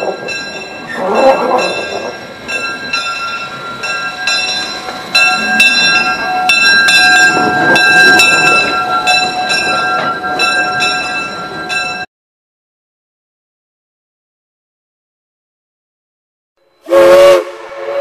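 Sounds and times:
locomotive bell ringing: 0:00.0 - 0:12.1
train cars rolling: 0:00.0 - 0:12.1.

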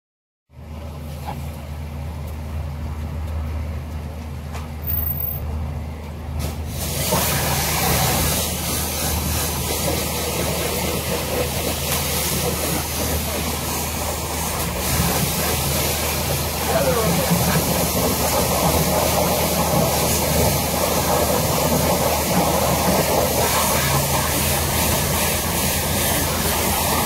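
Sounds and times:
pressure washer humming: 0:06.4 - 0:27.0
water jet hissing on car: 0:06.4 - 0:27.0.

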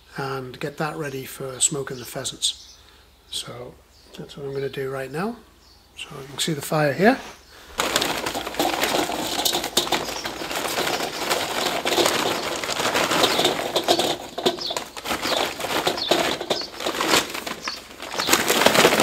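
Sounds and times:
sack rustling: 0:07.1 - 0:19.0
charcoal clattering into metal grill: 0:07.8 - 0:19.0.

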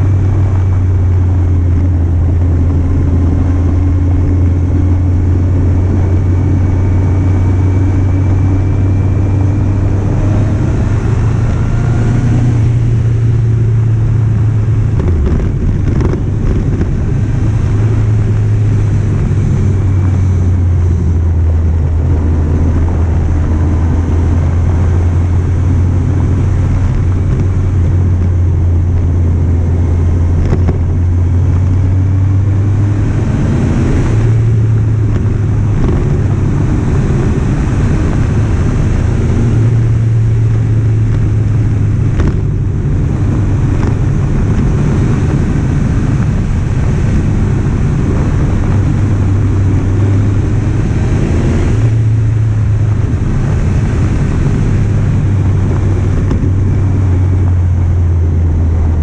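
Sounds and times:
motorcycle engine running: 0:00.0 - 0:59.0
wind rushing over microphone: 0:00.0 - 0:59.0.

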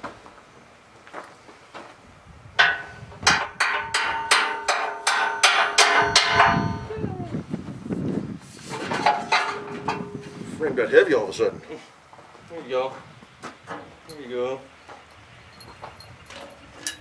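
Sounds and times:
hammer striking steel: 0:02.6 - 0:06.9
metal parts clattering: 0:08.7 - 0:10.2, 0:15.6 - 0:17.0.

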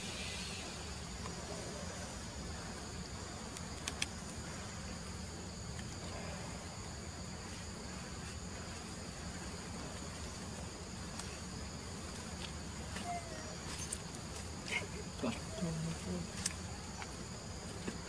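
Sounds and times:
insects trilling: 0:00.0 - 0:18.0
faint clicks: 0:03.5 - 0:04.1.

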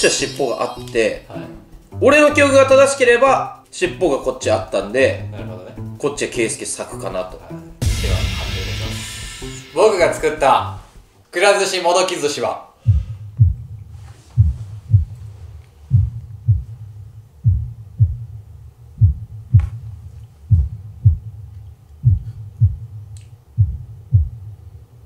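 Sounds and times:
heartbeat double thumps: 0:07.8 - 0:09.1, 0:12.9 - 0:24.6.

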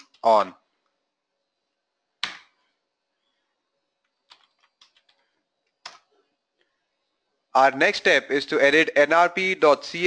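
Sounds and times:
keyboard keystrokes: 0:04.3 - 0:05.2.

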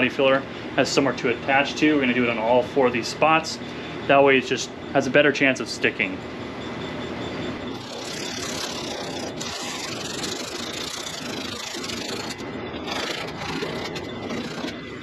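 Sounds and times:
sandpaper scraping on metal: 0:07.8 - 0:15.0.

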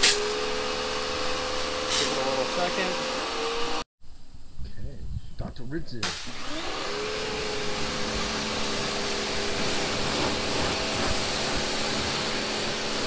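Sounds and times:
high-pressure water jet hissing: 0:00.0 - 0:03.8, 0:06.0 - 0:13.0
pressure washer motor humming: 0:00.0 - 0:03.8, 0:06.2 - 0:13.0.

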